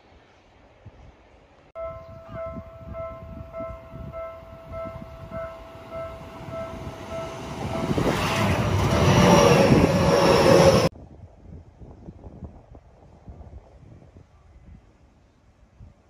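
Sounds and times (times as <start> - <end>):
level-crossing bell ringing: 1.8 - 10.9
train passing: 1.8 - 10.9.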